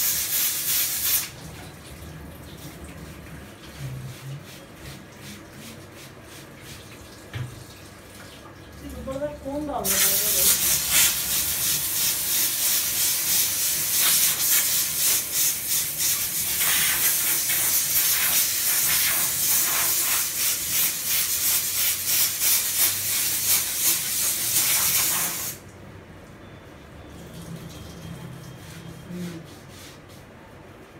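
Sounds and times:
steam cleaner hissing: 0.0 - 1.3, 9.8 - 25.6.

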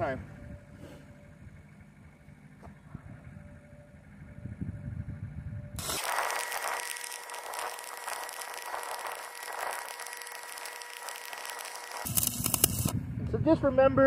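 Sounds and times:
faint steady whine: 0.0 - 14.0
welding arc crackling and hissing: 5.8 - 13.0.

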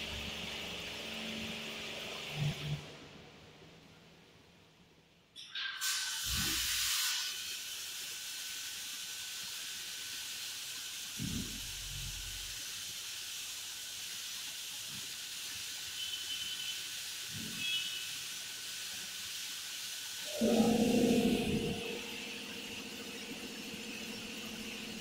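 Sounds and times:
high-pressure water spraying: 5.8 - 25.0.

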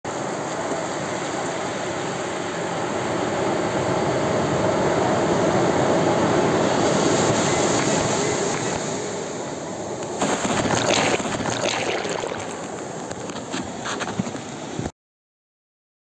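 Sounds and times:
waves breaking on sand: 6.4 - 14.8.

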